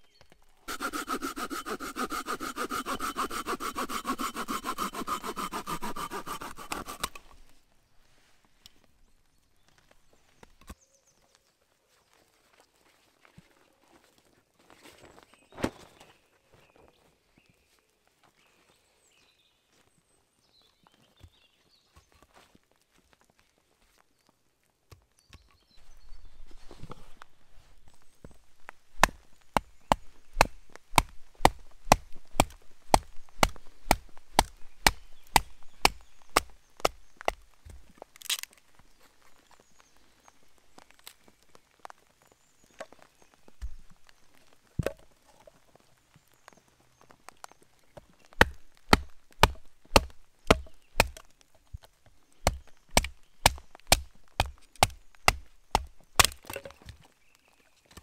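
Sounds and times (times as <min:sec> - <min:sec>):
wood cracking: 0:00.0 - 0:07.6, 0:28.2 - 0:39.6, 0:47.0 - 0:57.2.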